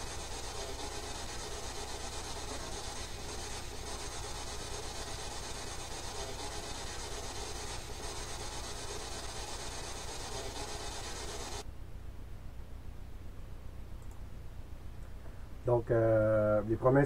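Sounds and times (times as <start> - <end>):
recording hiss and crackle: 0.0 - 11.7
low electrical hum: 0.0 - 17.0.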